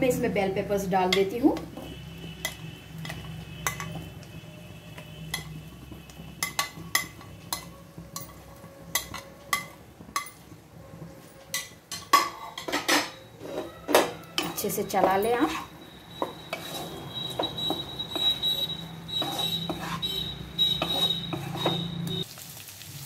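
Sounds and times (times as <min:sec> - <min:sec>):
frying onions: 0:00.0 - 0:23.0
plate and spoon tapping pan: 0:06.4 - 0:08.3, 0:11.5 - 0:15.6, 0:16.2 - 0:18.4, 0:19.1 - 0:22.2.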